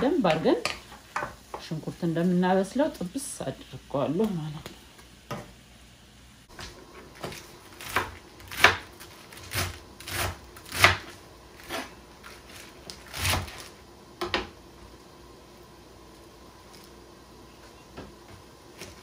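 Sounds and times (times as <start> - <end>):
knife chopping on plastic board: 7.2 - 11.1.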